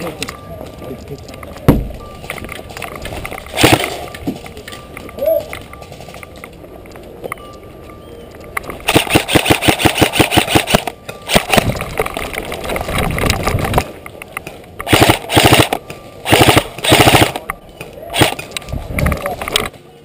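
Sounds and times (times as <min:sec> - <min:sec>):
airsoft rifle firing bursts: 0:03.5 - 0:04.0, 0:08.8 - 0:11.8, 0:14.8 - 0:17.5, 0:18.1 - 0:18.4.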